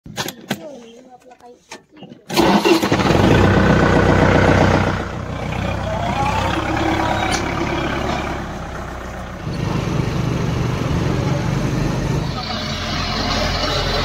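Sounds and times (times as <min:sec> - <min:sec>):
tractor diesel engine running: 0:02.3 - 0:14.0.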